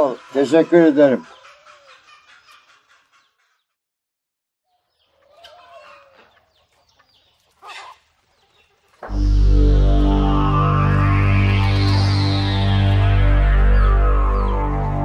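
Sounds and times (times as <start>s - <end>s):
faint chickens clucking: 0.0s - 3.8s, 4.7s - 9.2s.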